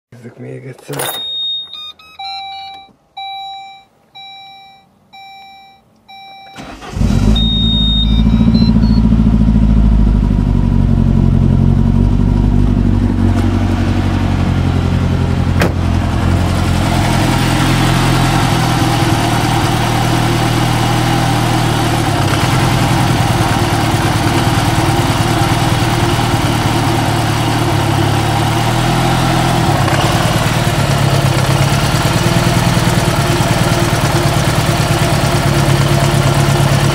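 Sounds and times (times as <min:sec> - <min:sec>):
car engine starting and idling: 0:01.0 - 0:36.9
car warning chime beeping: 0:01.2 - 0:09.3.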